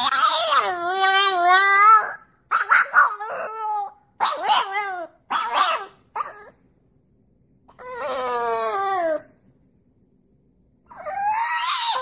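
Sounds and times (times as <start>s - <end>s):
puppy howl-barking: 0.0s - 6.6s, 7.7s - 9.3s, 10.9s - 12.0s.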